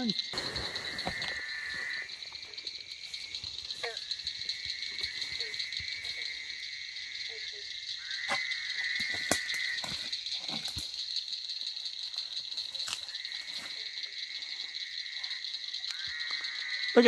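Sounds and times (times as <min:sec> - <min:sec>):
high-pitched insect trilling: 0:00.0 - 0:17.0.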